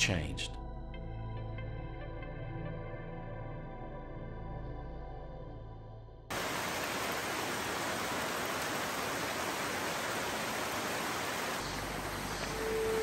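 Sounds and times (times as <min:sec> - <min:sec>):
rainforest rushing hiss: 0:06.3 - 0:13.0.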